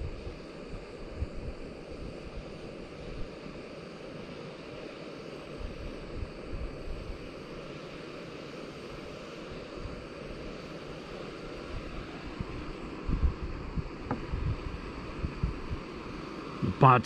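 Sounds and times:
gas stove burning: 0:00.0 - 0:17.0
wind buffeting microphone: 0:11.8 - 0:15.9.

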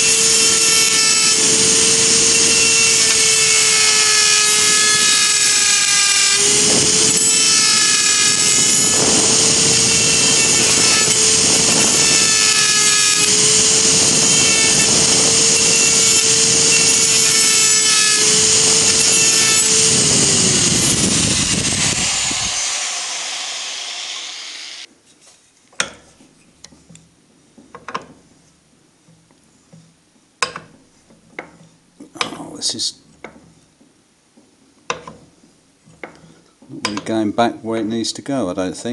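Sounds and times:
die grinder grinding metal: 0:00.0 - 0:24.9.

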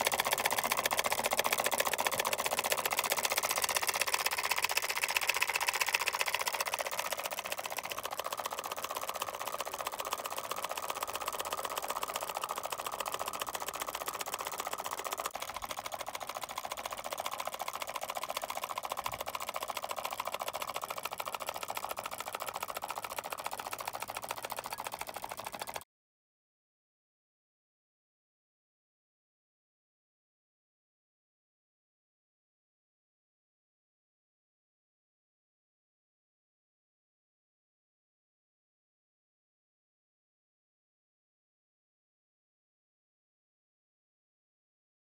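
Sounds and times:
electromagnetic engine clatter: 0:00.0 - 0:25.8.

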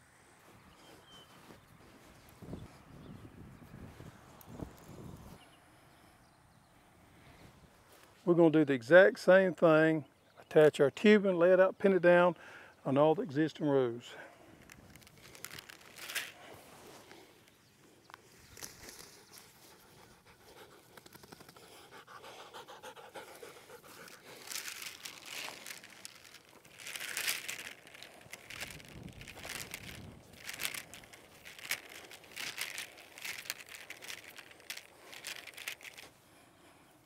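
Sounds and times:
footsteps in sandy soil: 0:00.0 - 0:05.4, 0:07.3 - 0:08.5, 0:14.4 - 0:20.7, 0:22.8 - 0:36.8
plastic tubing rustling and scuffing: 0:14.6 - 0:17.6, 0:23.8 - 0:36.2.

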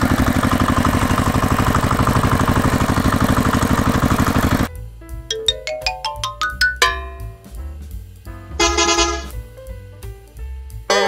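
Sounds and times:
short bright chime notes: 0:05.3 - 0:07.6.

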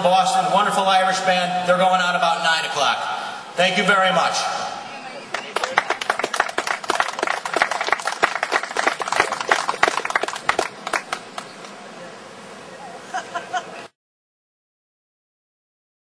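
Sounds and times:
small crowd clapping: 0:05.3 - 0:11.8.

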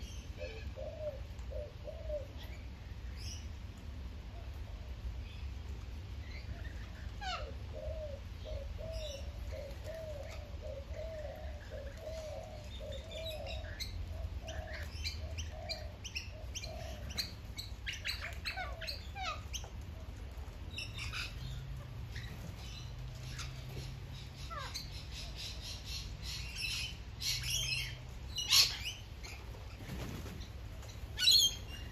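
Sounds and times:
low repeated cooing: 0:00.3 - 0:02.7, 0:06.8 - 0:20.1
lorikeets chattering and squeaking: 0:12.5 - 0:19.7, 0:20.8 - 0:29.6, 0:31.2 - 0:31.9
wings flapping: 0:29.4 - 0:31.1.

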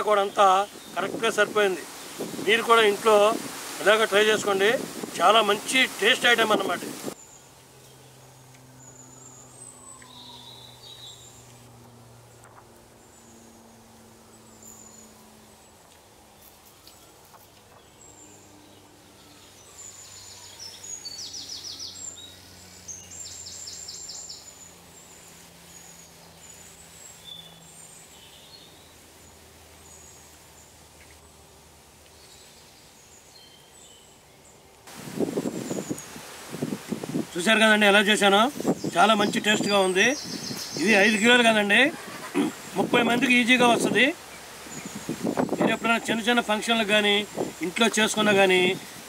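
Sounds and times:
birds chirping and calling: 0:35.2 - 0:49.0.

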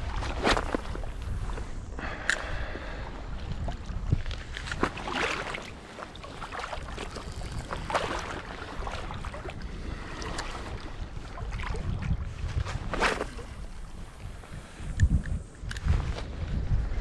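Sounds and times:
wind rumbling on microphone: 0:00.0 - 0:17.0
water sloshing around wading legs: 0:03.5 - 0:13.9.

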